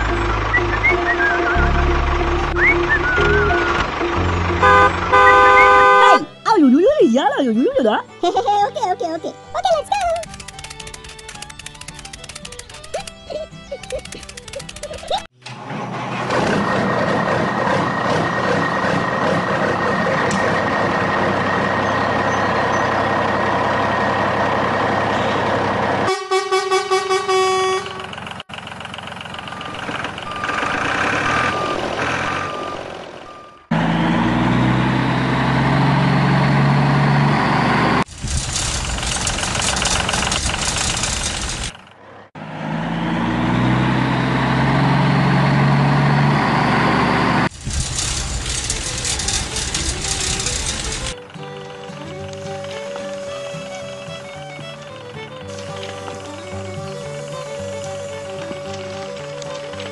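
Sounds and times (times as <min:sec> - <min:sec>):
tractor engine running: 0:00.0 - 0:08.2, 0:09.4 - 0:59.9
horn toots: 0:00.5 - 0:06.4, 0:25.2 - 0:28.2.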